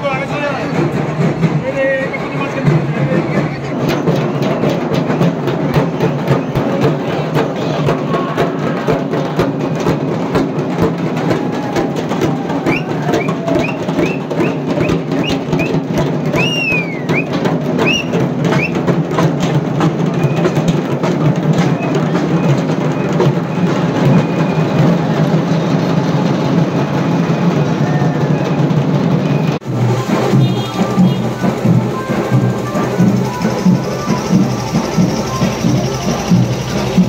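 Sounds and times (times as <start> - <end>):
rapid drumming: 0.0 - 37.0
high whistle-like chirps: 16.4 - 18.8.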